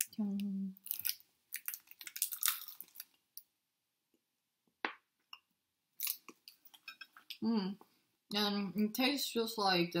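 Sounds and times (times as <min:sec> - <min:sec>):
candy wrapper crinkling: 0:00.0 - 0:03.5.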